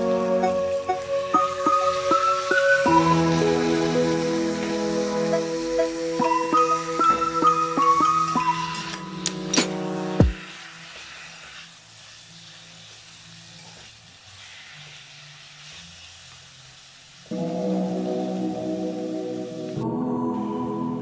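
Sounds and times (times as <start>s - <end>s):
background music: 0.0s - 10.8s, 17.3s - 21.0s
music with sustained layered tones: 0.0s - 11.8s, 15.9s - 21.0s
chicken sauteing in a pan: 0.0s - 19.8s.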